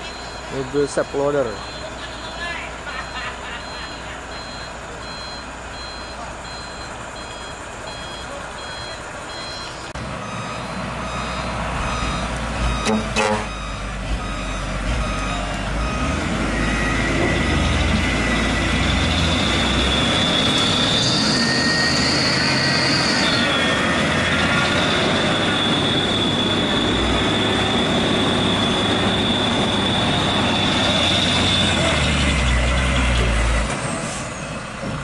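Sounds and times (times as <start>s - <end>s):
truck engine running under load: 0.0s - 35.0s
high-pitched whine: 15.0s - 33.1s.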